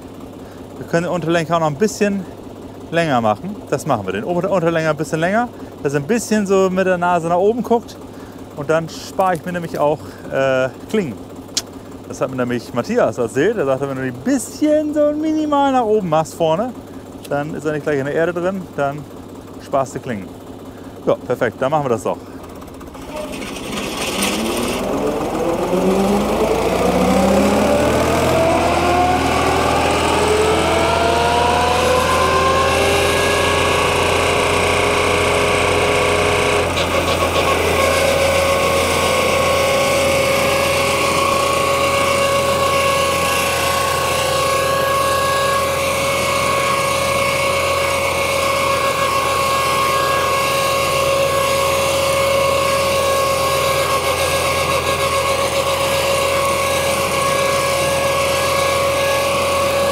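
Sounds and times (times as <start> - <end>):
drum mower whining: 0.0 - 59.9
tractor engine hum: 0.0 - 59.9.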